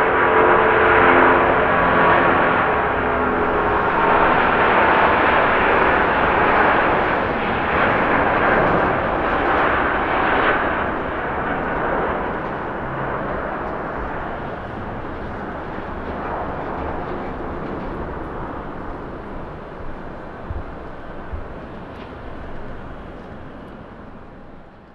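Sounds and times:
jet airliner roar at takeoff: 0.0 - 24.9.

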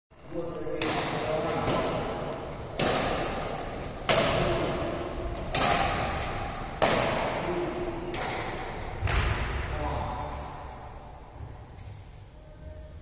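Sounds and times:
racket hitting shuttlecock: 0.7 - 9.7.

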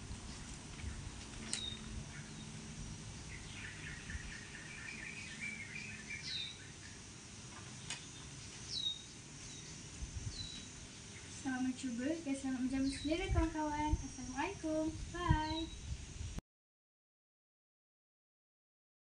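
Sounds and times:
birds chattering: 0.2 - 15.9
birds whistling: 0.3 - 2.6, 3.2 - 7.0, 7.8 - 12.0, 12.7 - 15.9.

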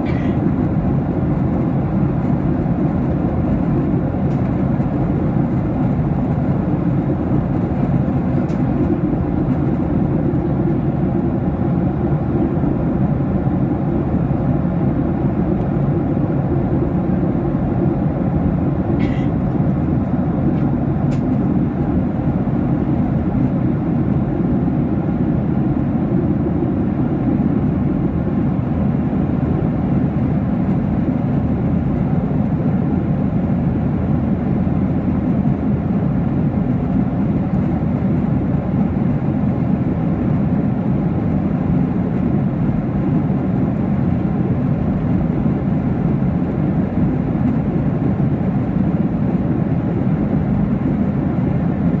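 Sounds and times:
airplane cabin noise: 0.0 - 52.0.

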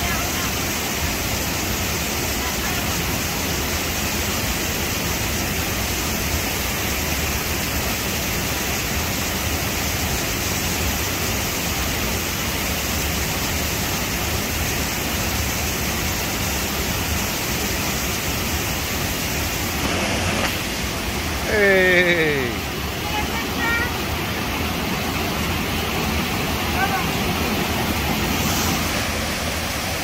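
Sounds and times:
rushing water: 0.0 - 30.0.

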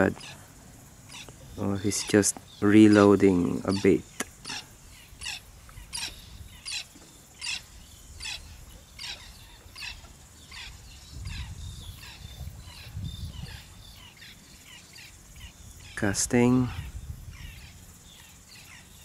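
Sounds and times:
small animal chirping: 1.1 - 15.5
low wind rumble on microphone: 4.8 - 6.8, 7.6 - 14.6, 15.2 - 18.2.

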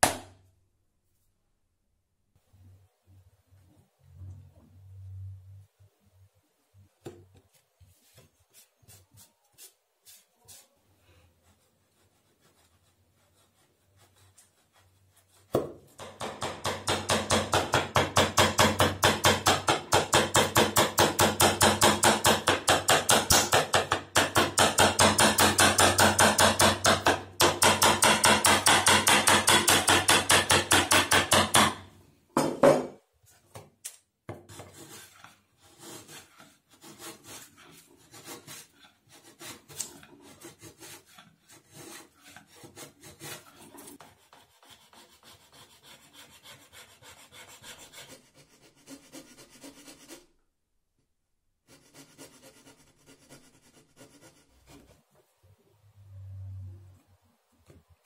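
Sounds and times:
chisel cutting strokes on wood: 11.5 - 31.8, 34.3 - 50.3.

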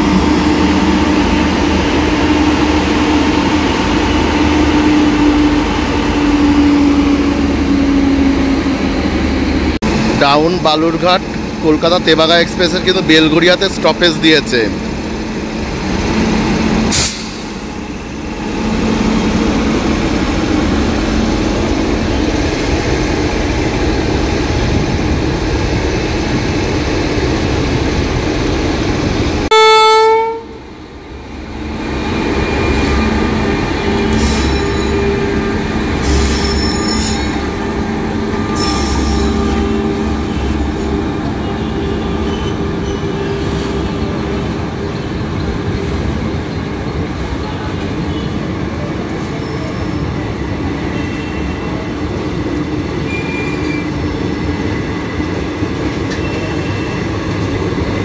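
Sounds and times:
electric locomotive humming: 0.0 - 58.0
loud train horn blast: 29.4 - 30.6, 37.2 - 44.5.

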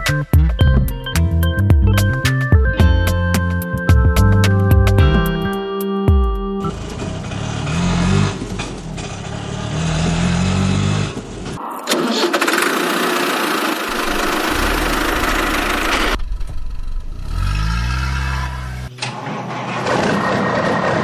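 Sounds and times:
engine revving up: 6.6 - 21.0
engine running low: 6.6 - 21.0.

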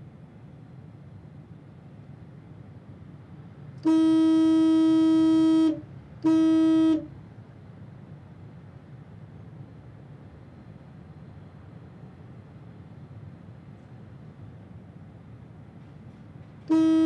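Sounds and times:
car horn honking: 3.8 - 7.1, 16.7 - 17.0.

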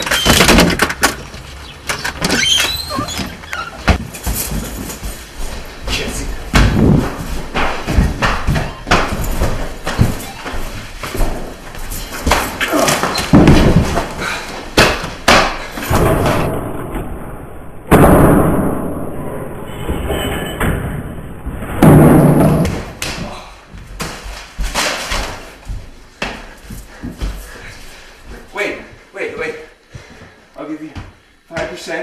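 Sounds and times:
bodies thudding against floor: 3.8 - 16.4
loud thumps and slams: 6.4 - 10.5, 12.2 - 23.2.

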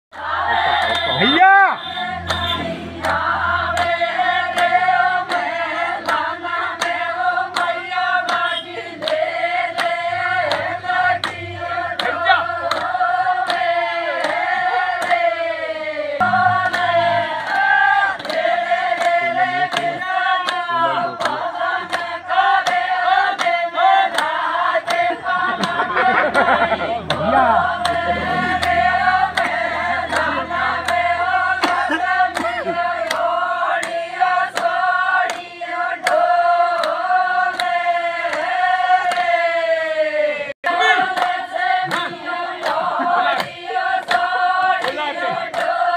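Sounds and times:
women singing in chorus: 0.1 - 1.2, 2.0 - 45.9
sharp regular beat: 16.2 - 18.6.

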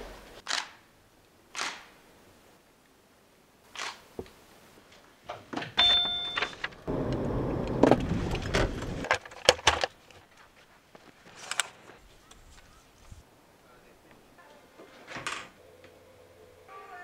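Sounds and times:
electronic beep: 5.8 - 6.6
car cabin rumble while driving: 5.8 - 9.1.

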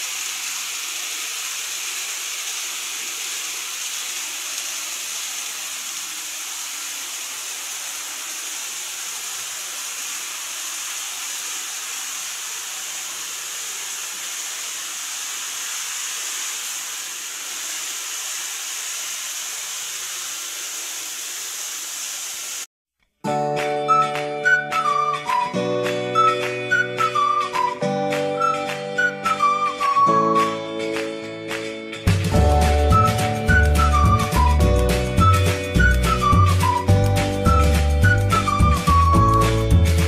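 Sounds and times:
model trains running hiss: 0.0 - 22.7.

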